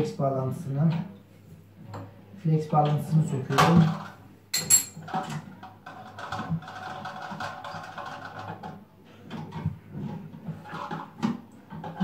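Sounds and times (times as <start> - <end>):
hand tool clinking on metal: 4.6 - 5.0.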